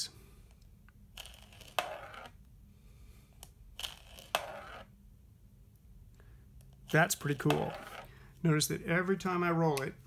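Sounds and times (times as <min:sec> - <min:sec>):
marble rolling on plastic lid: 0:01.2 - 0:02.4, 0:03.8 - 0:04.9, 0:07.4 - 0:08.1.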